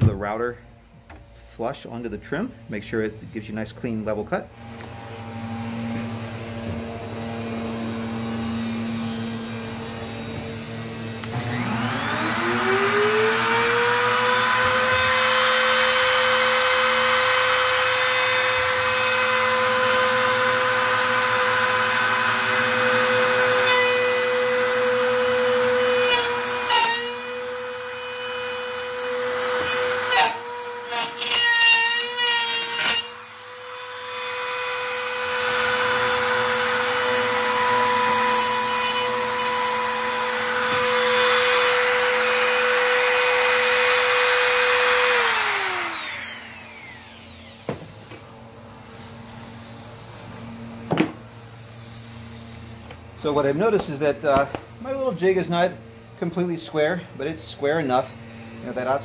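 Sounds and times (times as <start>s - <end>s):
trim router whining: 4.5s - 51.4s.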